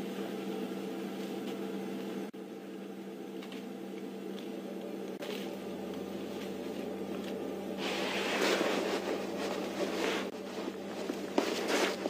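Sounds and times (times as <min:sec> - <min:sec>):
low hum: 0:00.0 - 0:12.0
elephant rustling through bushes: 0:06.2 - 0:12.0.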